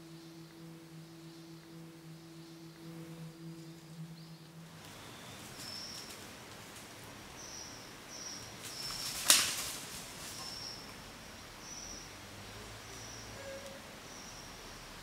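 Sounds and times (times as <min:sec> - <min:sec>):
high-pitched chirps: 0:00.0 - 0:06.2.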